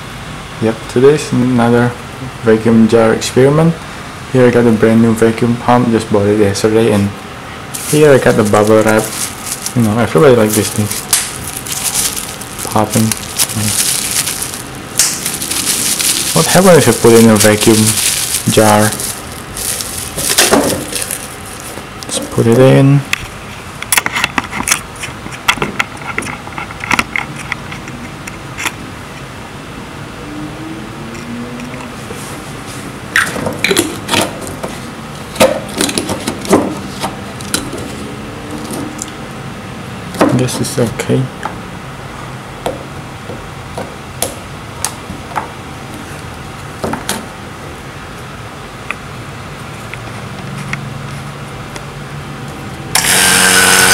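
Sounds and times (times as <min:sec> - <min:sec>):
background hiss: 0:06.9 - 0:23.2
electric vacuum pump running: 0:07.0 - 0:23.5, 0:52.5 - 0:53.9
bubble wrap crinkling and crackling: 0:07.7 - 0:22.8.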